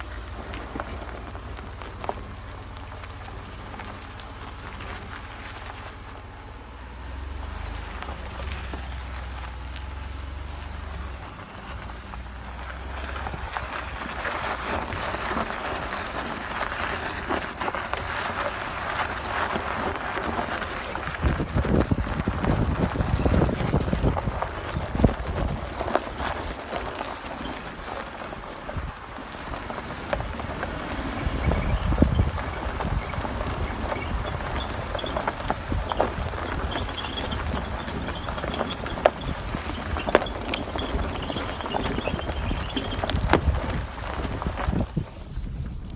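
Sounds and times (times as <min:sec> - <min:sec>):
tyres crunching over gravel: 0:00.0 - 0:45.9
wind buffeting microphone: 0:12.8 - 0:45.9
high squeaks from truck: 0:31.1 - 0:44.3.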